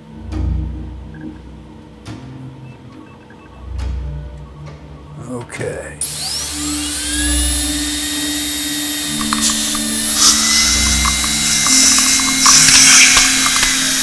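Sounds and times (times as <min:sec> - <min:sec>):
dental drill whine: 0:06.0 - 0:14.0.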